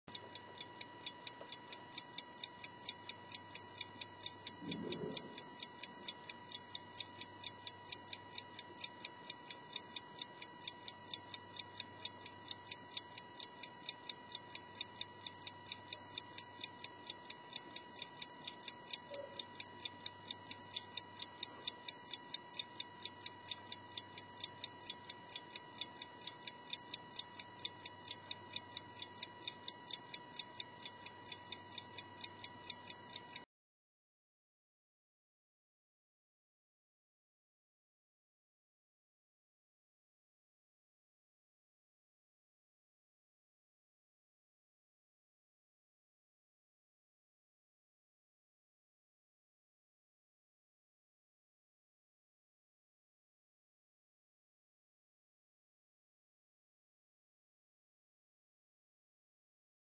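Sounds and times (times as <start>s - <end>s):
clock ticking rapidly: 0.1s - 33.4s.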